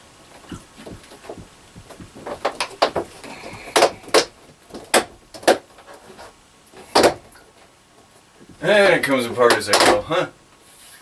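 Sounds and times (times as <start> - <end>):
plastic panels knocking: 0.4 - 7.4, 9.4 - 10.2.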